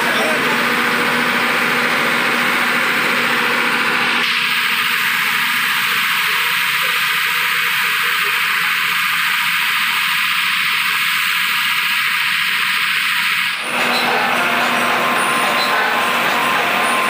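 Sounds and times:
loud hissing from speakers: 4.2s - 13.4s.

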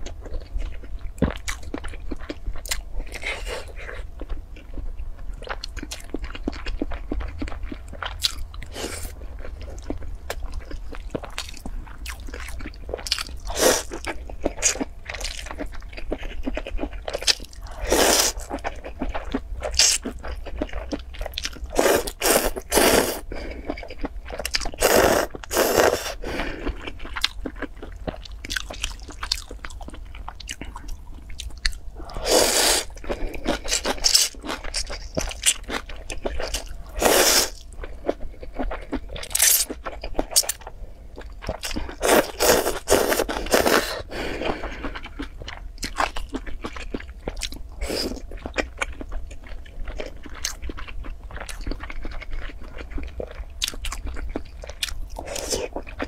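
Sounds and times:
person chewing with mouth clicks: 0.0s - 56.0s
loud noodle slurps: 32.1s - 32.9s, 37.0s - 37.6s.

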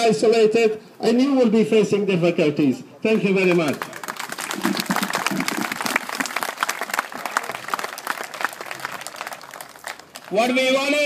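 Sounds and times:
crowd applauding: 3.5s - 11.0s.

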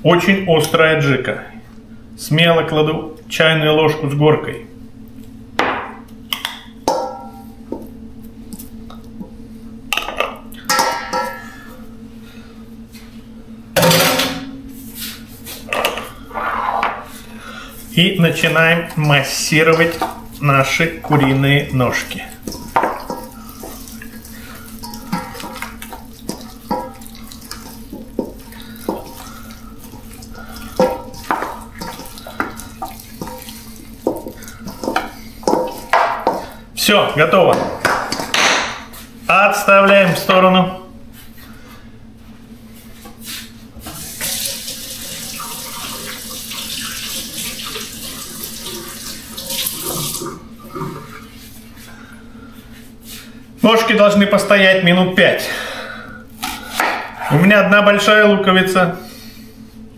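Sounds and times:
steady low hum: 0.0s - 44.8s, 47.3s - 59.9s
hands kneading raw meat: 17.9s - 36.6s.

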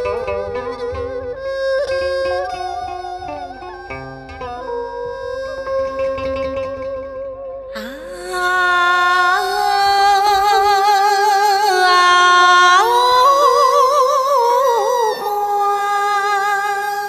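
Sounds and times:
woman singing long notes: 7.8s - 17.0s.

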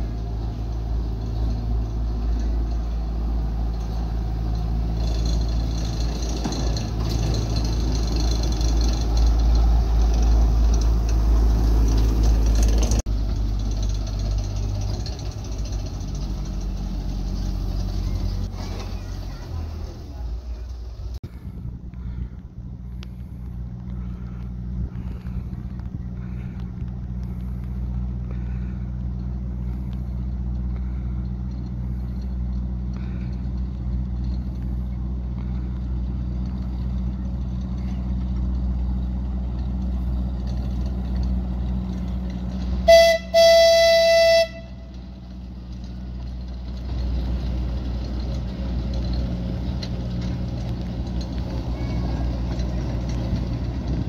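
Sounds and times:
locomotive engine droning: 0.0s - 54.0s
train horn blast: 42.8s - 45.0s.

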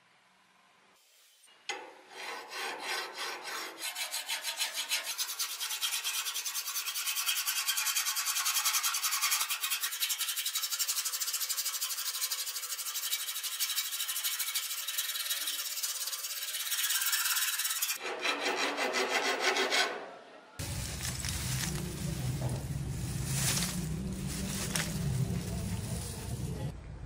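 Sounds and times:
file rasping on sword blade: 2.1s - 20.0s.

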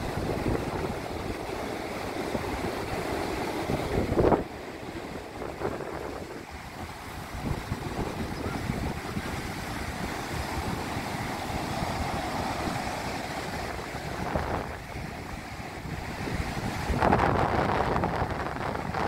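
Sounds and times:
ocean surf breaking: 0.0s - 19.0s
wind buffeting microphone: 0.0s - 19.0s.

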